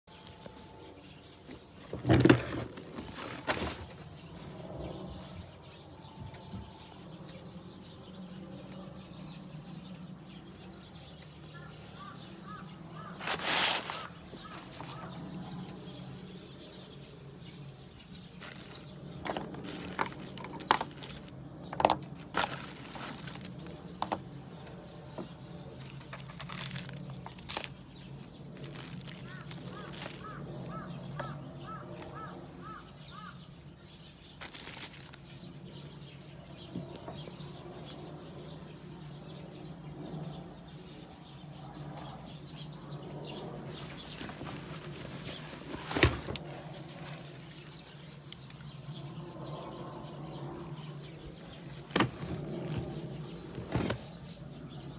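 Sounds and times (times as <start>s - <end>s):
metal hardware clinking on wood: 18.7s - 22.6s, 24.0s - 24.3s, 25.8s - 28.2s.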